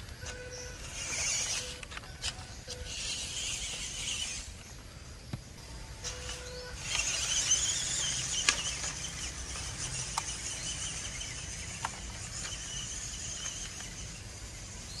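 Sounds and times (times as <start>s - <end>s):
electric motor and gears whining: 0.0s - 15.0s
sharp clicks: 6.0s - 14.1s.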